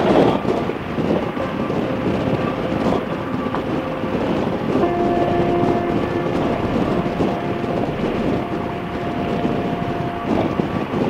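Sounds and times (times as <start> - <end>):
wind noise on microphone: 0.0 - 11.0
steady tone: 0.7 - 11.0.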